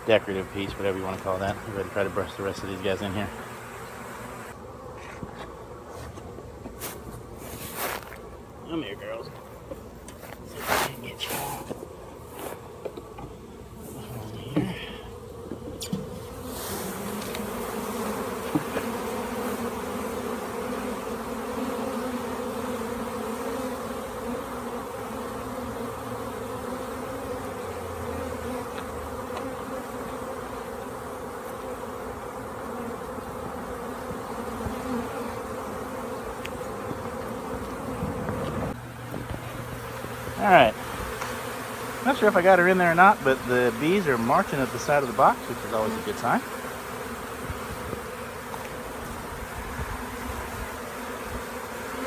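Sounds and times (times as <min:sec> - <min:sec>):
bee swarm buzzing: 0:00.0 - 0:52.0.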